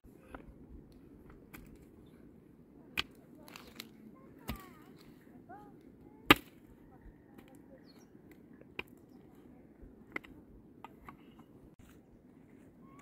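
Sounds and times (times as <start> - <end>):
ticks of earth and stones: 0.1 - 12.0
mattock chopping stony soil: 2.9 - 5.1, 6.2 - 6.8, 8.3 - 9.2.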